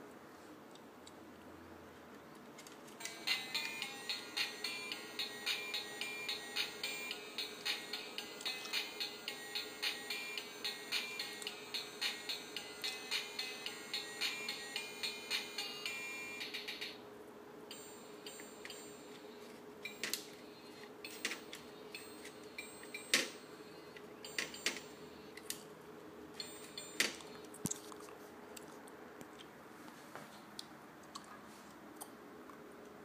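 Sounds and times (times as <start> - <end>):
faint steady hum: 0.0 - 33.0
toy keyboard electronic notes: 3.0 - 17.0, 17.7 - 25.2, 26.4 - 27.5.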